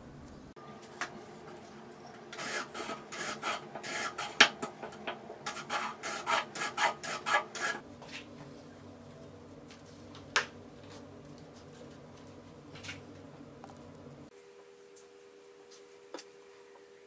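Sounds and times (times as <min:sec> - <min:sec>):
hand plane shaving wood: 0:02.4 - 0:04.4, 0:05.5 - 0:07.8.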